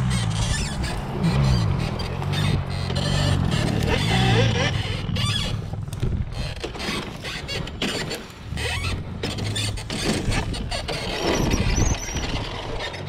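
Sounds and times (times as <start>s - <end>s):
motorbike engine running unevenly: 0.0s - 7.8s.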